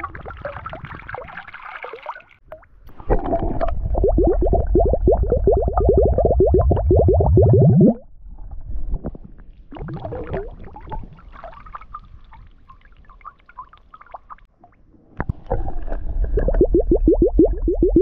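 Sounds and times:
water splashing and dribbling: 0.0 - 8.0, 8.6 - 18.0
underwater glugging bubbles: 3.0 - 8.1, 9.7 - 11.2, 15.4 - 18.0.

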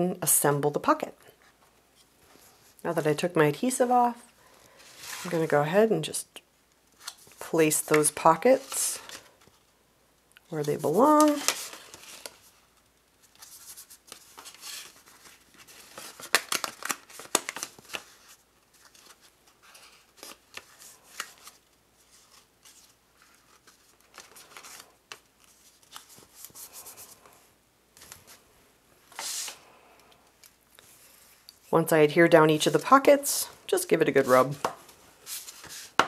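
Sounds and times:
cardstock sliding and rustling: 4.8 - 5.3, 29.1 - 29.6, 34.2 - 36.0.

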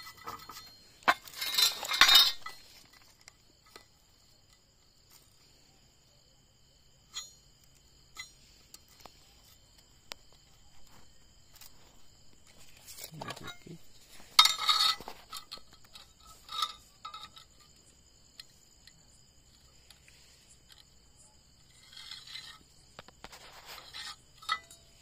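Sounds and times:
hand rubbing steel plate: 0.0 - 3.1, 10.7 - 17.8, 19.8 - 25.0.

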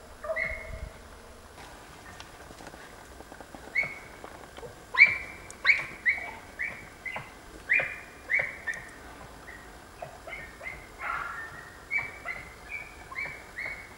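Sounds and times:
dog barking high-pitched: 10.0 - 12.5.

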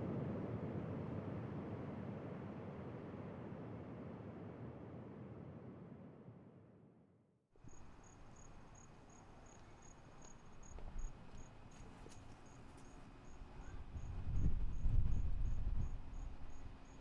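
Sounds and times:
cricket chirping: 7.6 - 17.0.

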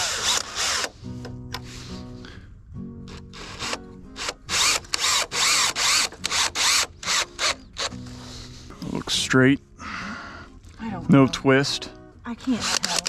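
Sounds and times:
power drill bursts: 0.0 - 1.0, 3.3 - 8.1, 12.5 - 13.0
background music: 0.0 - 13.0.

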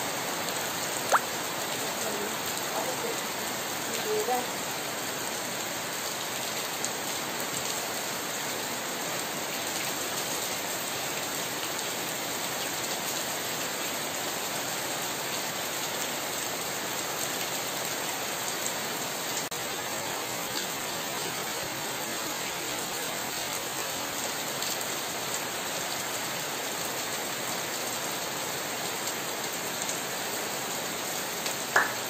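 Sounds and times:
heavy rain on pavement and leaves: 0.0 - 32.0.

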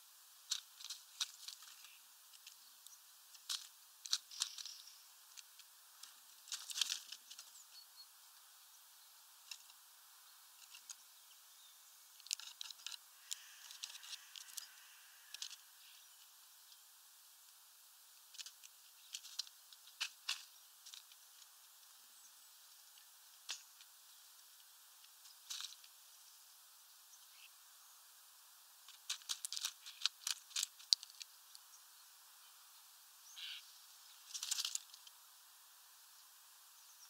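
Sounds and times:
faint steady hiss: 0.0 - 37.0
birds pecking seeds: 0.1 - 37.0.

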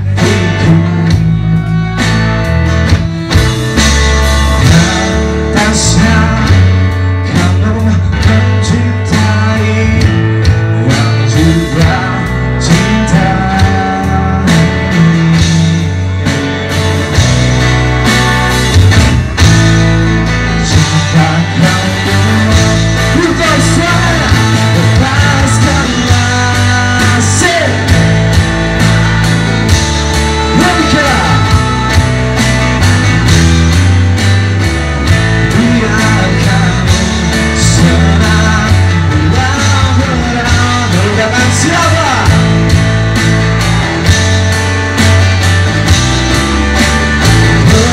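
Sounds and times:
man singing: 0.0 - 2.0, 4.3 - 16.3, 20.4 - 32.5, 35.3 - 42.8, 47.3 - 47.9
electric guitar: 0.0 - 47.9
drum beat: 2.0 - 6.8, 13.6 - 47.9.

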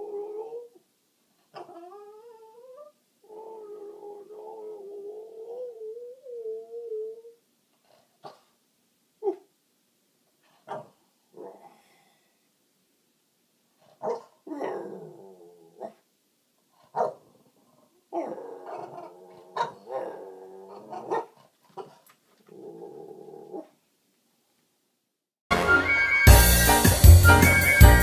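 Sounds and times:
dog grumbling and moaning: 1.5 - 7.3, 14.5 - 16.0, 18.1 - 23.7
dog yipping and barking: 14.0 - 14.8, 16.9 - 17.2, 19.6 - 20.1, 20.8 - 22.0
loud music: 25.5 - 28.0.

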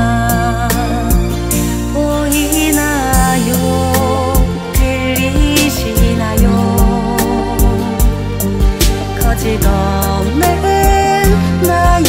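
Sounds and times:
pop ballad with drum beat: 0.0 - 12.0.

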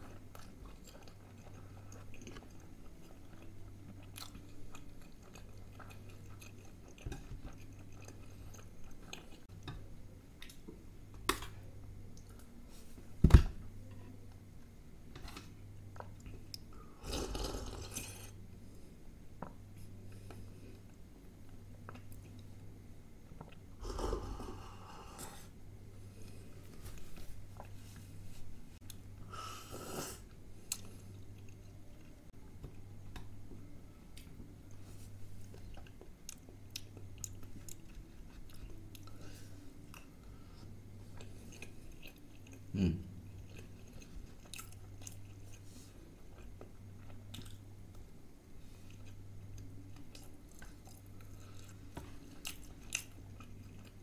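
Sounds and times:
chewing and crunching food: 0.0 - 9.6, 15.8 - 18.4, 19.4 - 24.4, 30.2 - 54.0
steady low hum: 0.0 - 54.0
slurping from a bowl: 17.0 - 18.4.

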